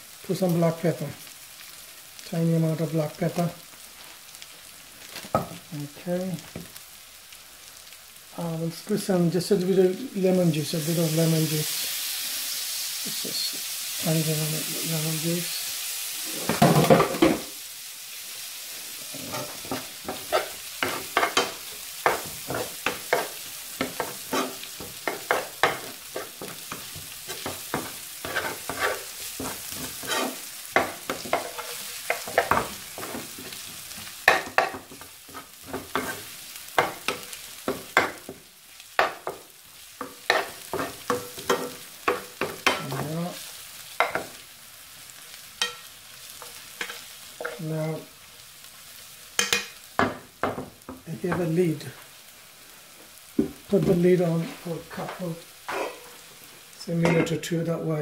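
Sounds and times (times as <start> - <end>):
food sizzling in a pan: 0.0 - 58.0
metal spoon scraping frying pan: 19.1 - 33.6, 55.7 - 56.2.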